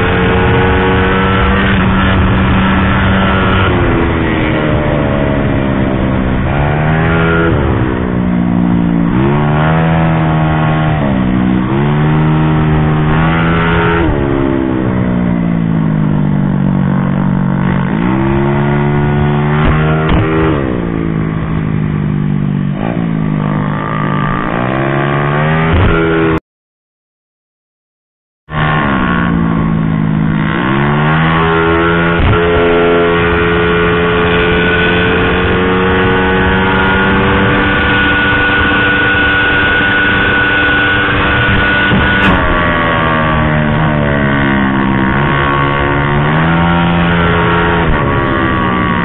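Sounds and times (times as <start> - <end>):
scooter engine revving: 28.5 - 49.0.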